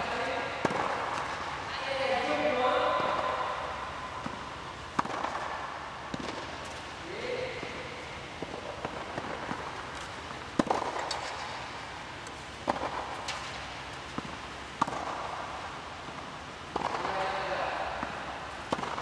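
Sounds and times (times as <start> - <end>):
tennis ball bouncing on clay: 0.1 - 1.4, 4.2 - 6.8, 8.4 - 19.0
tennis ball struck by rackets: 0.1 - 1.6, 3.0 - 6.8, 7.6 - 19.0.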